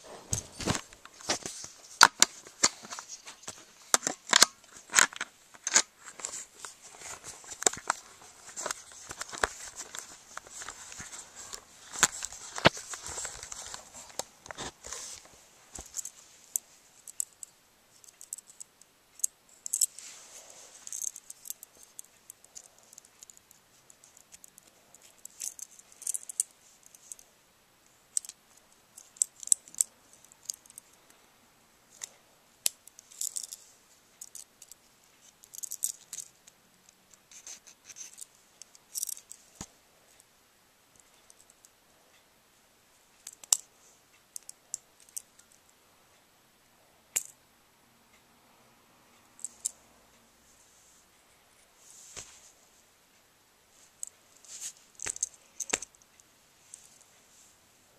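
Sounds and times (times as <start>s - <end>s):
rustling: 0.0s - 18.6s, 19.2s - 27.2s, 50.5s - 52.9s, 53.7s - 57.6s
small hard objects clicking and rattling: 2.0s - 6.4s, 20.8s - 27.2s, 29.0s - 30.9s, 34.2s - 36.4s, 43.2s - 43.7s, 54.0s - 56.0s.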